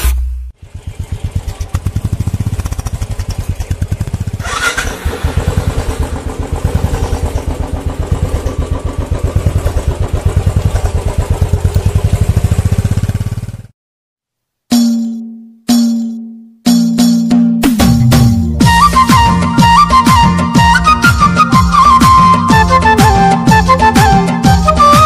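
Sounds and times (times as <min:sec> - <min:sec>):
small engine running: 0:00.6 - 0:13.7.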